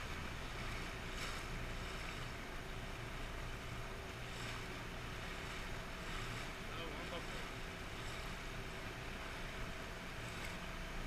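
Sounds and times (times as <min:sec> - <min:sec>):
outboard motor hum: 0:00.0 - 0:11.0
water wash: 0:00.0 - 0:11.0.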